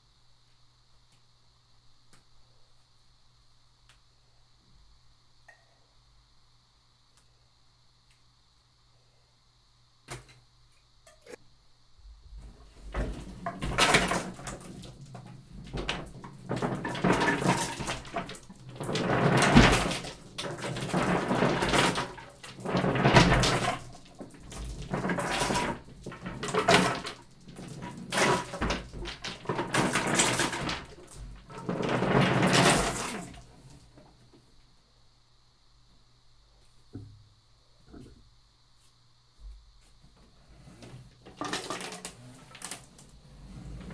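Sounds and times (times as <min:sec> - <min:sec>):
marbles rolling in a wooden tray: 0:13.0 - 0:33.5, 0:41.3 - 0:42.8.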